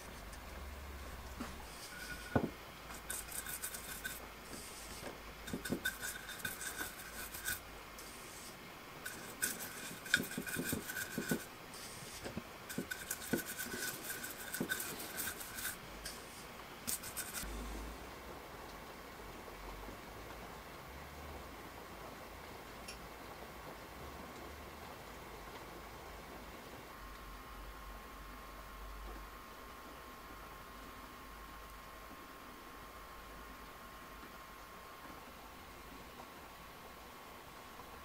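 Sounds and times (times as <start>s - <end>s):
paintbrush scrubbing on wood: 1.4s - 17.5s.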